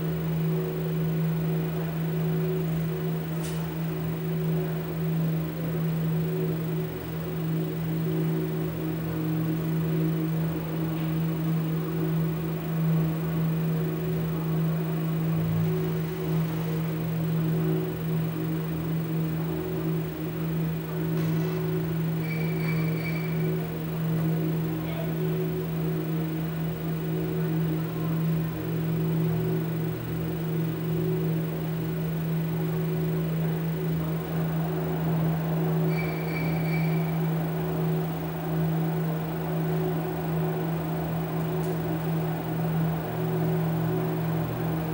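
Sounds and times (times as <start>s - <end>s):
electronic drone: 0.0s - 44.9s
noisy hiss: 0.0s - 44.9s
wavering high tones: 34.1s - 41.4s.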